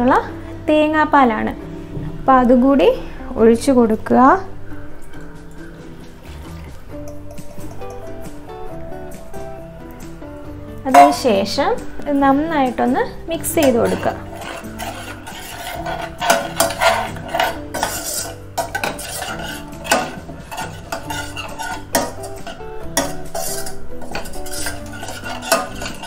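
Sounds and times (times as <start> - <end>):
spoon clinking and scraping pot: 10.9 - 11.6, 12.2 - 26.0.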